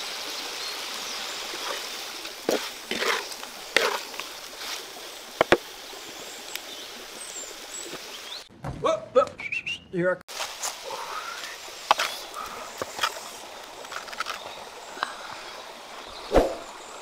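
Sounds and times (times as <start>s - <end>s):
oil sizzling in a wok: 0.0s - 8.5s
metal spatula scraping a pan: 2.5s - 4.1s.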